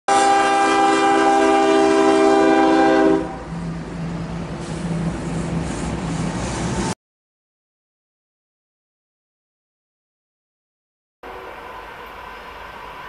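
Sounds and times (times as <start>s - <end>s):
locomotive air horn: 0.1s - 3.6s.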